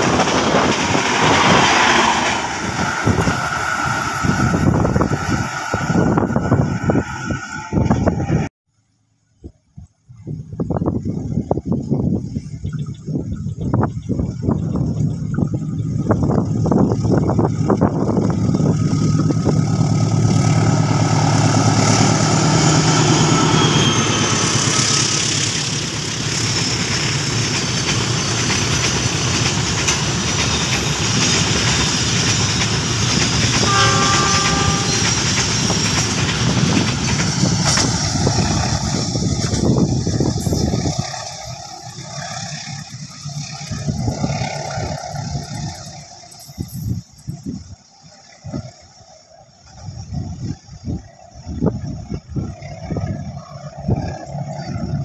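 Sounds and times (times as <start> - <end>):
train wheels clattering on rails: 0.0 - 6.1, 18.2 - 47.6
locomotive engine running heavily: 0.0 - 8.5, 14.4 - 55.0
train horn: 33.4 - 35.8.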